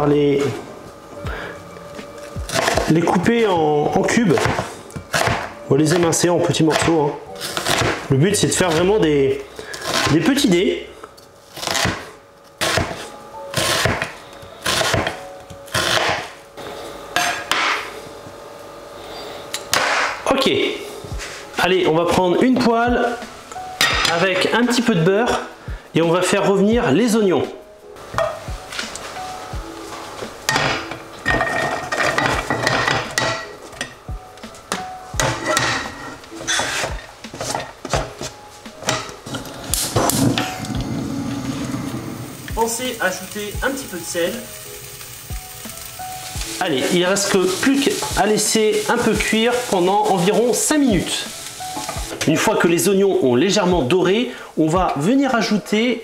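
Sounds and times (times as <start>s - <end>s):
onions scattering into pan: 42.3s - 52.6s.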